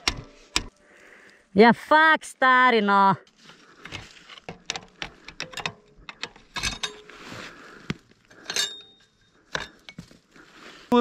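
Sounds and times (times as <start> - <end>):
metal parts and tools clinking: 3.8 - 7.2, 8.3 - 10.1.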